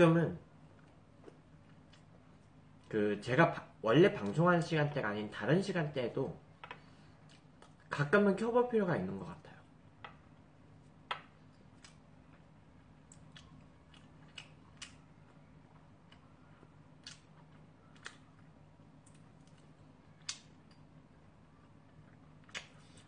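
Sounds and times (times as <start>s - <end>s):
faint low hum: 0.0s - 23.0s
chewing: 13.1s - 20.8s.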